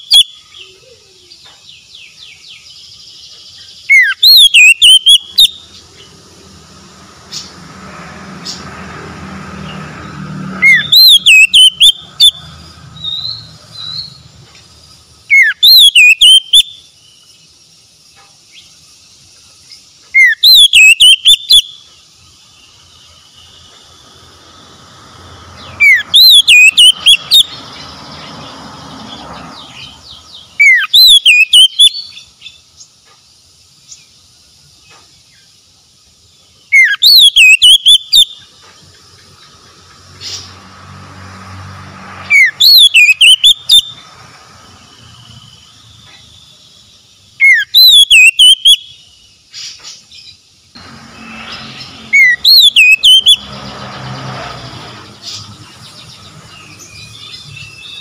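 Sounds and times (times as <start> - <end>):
bird singing whistled phrases: 3.6 - 5.7, 10.6 - 12.4, 15.3 - 16.8, 20.1 - 21.8, 25.7 - 27.5, 30.6 - 32.3, 36.7 - 38.4, 42.3 - 44.0, 47.4 - 49.1, 52.1 - 53.4.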